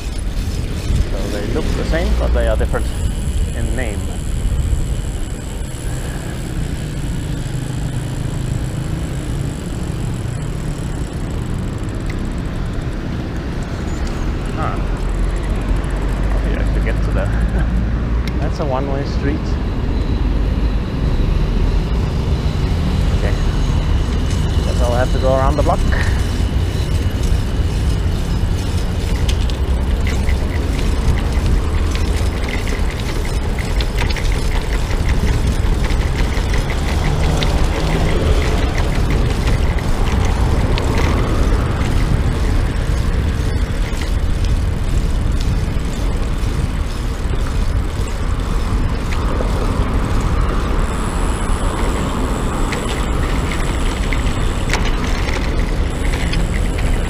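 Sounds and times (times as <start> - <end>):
cars passing: 0.0 - 57.0
wind rumble on microphone: 0.0 - 57.0.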